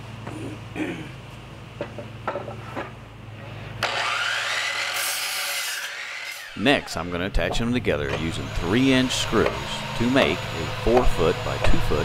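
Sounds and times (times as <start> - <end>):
miter saw whining and cutting: 3.8 - 12.0.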